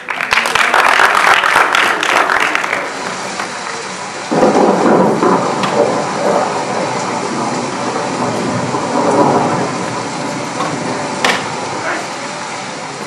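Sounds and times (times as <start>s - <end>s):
rain hissing: 0.0s - 13.0s
thunder rumbling: 1.5s - 13.0s.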